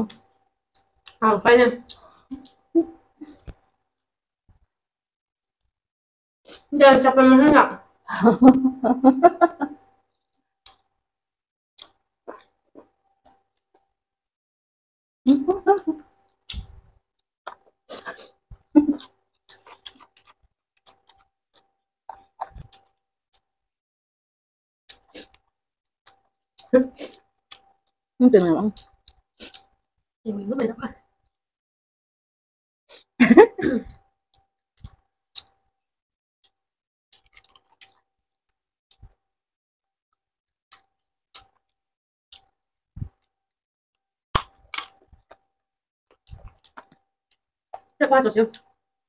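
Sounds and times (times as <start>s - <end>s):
wet chewing smacks and crunches: 11.8s - 13.9s, 17.5s - 23.5s, 24.9s - 28.0s, 34.8s - 35.6s, 36.4s - 38.1s, 38.9s - 39.2s, 40.7s - 41.8s, 44.4s - 45.4s, 46.1s - 47.1s.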